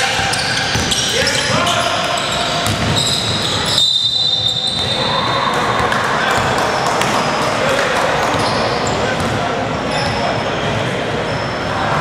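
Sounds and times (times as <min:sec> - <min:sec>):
players' voices: 0:00.0 - 0:03.8, 0:04.4 - 0:12.0
basketball bouncing: 0:02.6 - 0:03.0.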